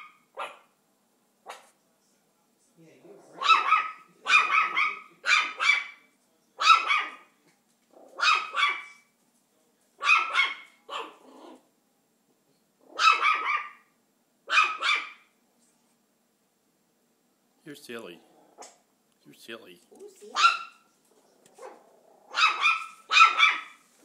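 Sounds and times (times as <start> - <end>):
puppy barking: 0.0 - 0.7, 1.4 - 1.8, 3.3 - 6.0, 6.6 - 7.3, 8.2 - 9.1, 10.0 - 11.6, 12.9 - 13.9, 14.5 - 15.3, 20.3 - 20.9, 21.6 - 23.8.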